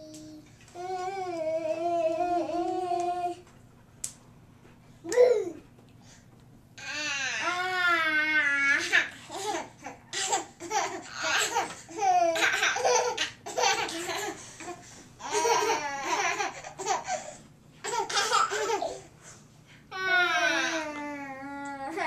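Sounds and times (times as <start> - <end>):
toddlers laughing: 8.8 - 19.0.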